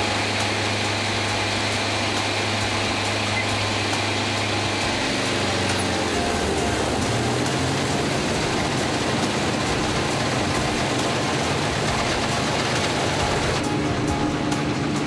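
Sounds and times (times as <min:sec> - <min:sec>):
combine harvester engine running: 0:00.0 - 0:15.0.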